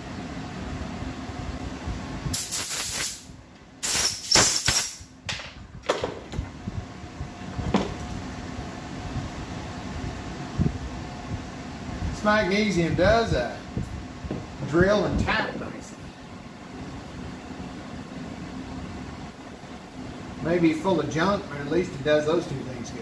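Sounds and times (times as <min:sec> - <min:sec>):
air blow gun hissing blasts: 0:02.3 - 0:05.1.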